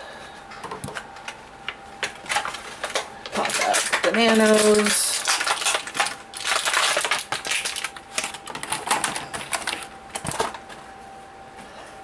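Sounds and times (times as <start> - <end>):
plastic packaging crackling: 1.7 - 10.8.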